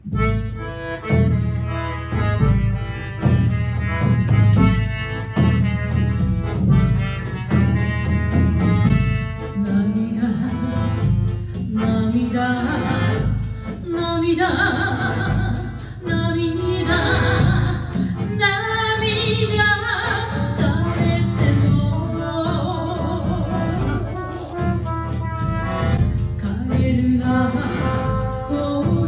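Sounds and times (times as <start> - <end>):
trumpet: 0.0 - 15.6, 16.6 - 29.0
accordion: 0.0 - 29.0
bass drum steady beat: 0.0 - 29.0
drum set: 0.0 - 29.0
woman singing into microphone: 9.5 - 24.8, 26.4 - 29.0.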